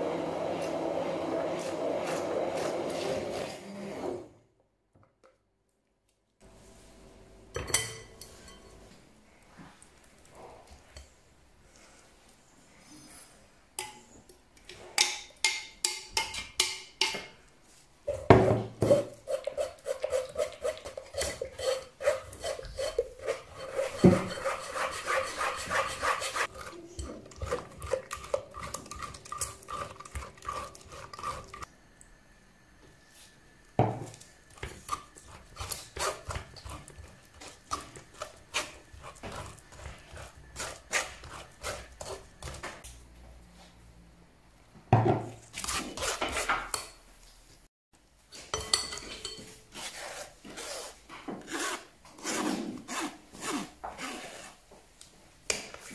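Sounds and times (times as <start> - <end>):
spoon scraping metal strainer: 18.8 - 31.7, 34.6 - 42.6.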